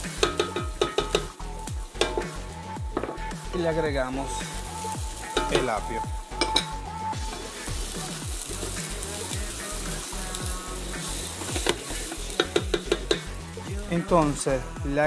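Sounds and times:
vegetables sizzling in oil: 0:00.0 - 0:14.6
background music with beat: 0:00.0 - 0:15.0
spatula clicking against pot: 0:00.2 - 0:01.4, 0:12.4 - 0:13.3.

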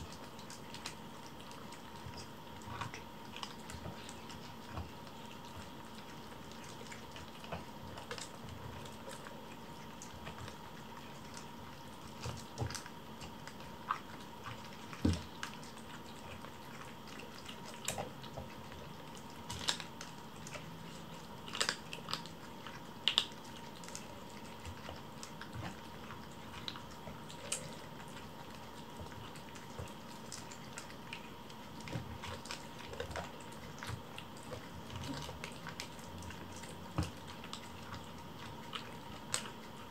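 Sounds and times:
kittens chewing and lapping: 0:00.0 - 0:39.9.

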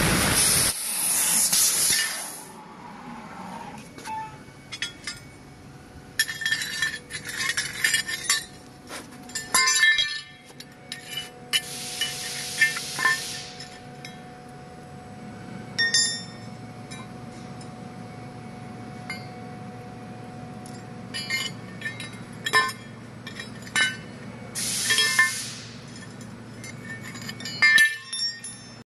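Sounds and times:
low machine hum: 0:02.5 - 0:28.8
steel parts clinking and clattering: 0:04.0 - 0:05.5, 0:06.1 - 0:14.6, 0:15.7 - 0:17.8, 0:20.6 - 0:28.8
long hisses: 0:11.7 - 0:13.6, 0:24.6 - 0:25.8.

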